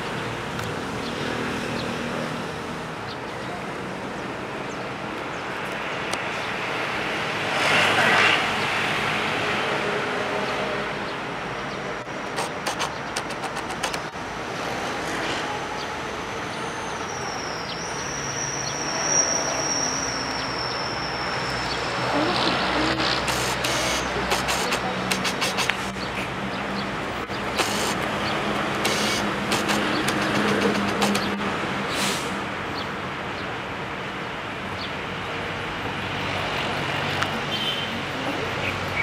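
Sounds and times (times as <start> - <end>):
road traffic noise: 0.0 - 39.0
quick clicks: 12.2 - 14.2, 23.0 - 26.0, 27.2 - 31.5.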